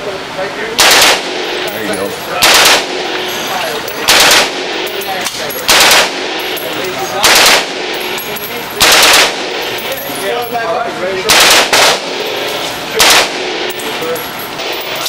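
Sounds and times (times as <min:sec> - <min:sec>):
automatic gunfire bursts: 0:00.8 - 0:01.7, 0:02.3 - 0:03.3, 0:04.0 - 0:05.0, 0:05.6 - 0:06.6, 0:07.2 - 0:08.1, 0:08.8 - 0:09.8, 0:11.3 - 0:12.4, 0:13.0 - 0:13.8.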